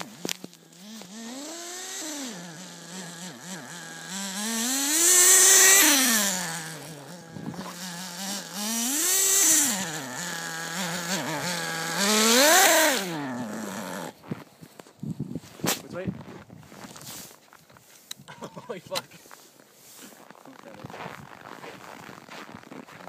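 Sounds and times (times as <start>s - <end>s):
small engine buzzing and revving: 0.0s - 14.3s.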